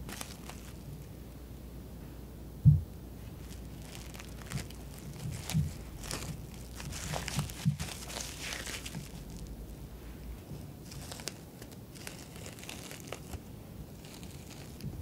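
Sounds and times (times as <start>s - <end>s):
plastic cling wrap crinkling: 0.0s - 1.0s, 3.3s - 9.8s, 10.8s - 15.0s
dull thump: 2.6s - 2.9s.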